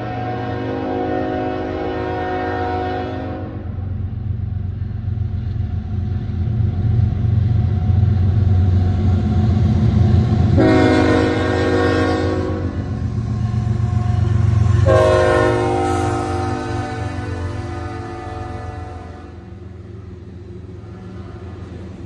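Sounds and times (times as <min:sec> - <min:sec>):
locomotive horn chord blast: 0:00.0 - 0:03.8, 0:10.6 - 0:12.9, 0:14.6 - 0:19.6.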